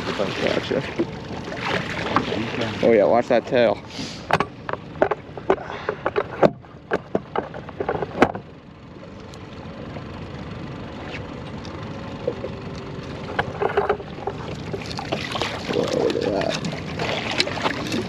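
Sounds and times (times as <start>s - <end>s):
water around a boat: 0.0s - 18.0s
wind: 0.0s - 18.0s
sharp knocks and clicks: 4.3s - 8.5s, 12.3s - 15.2s.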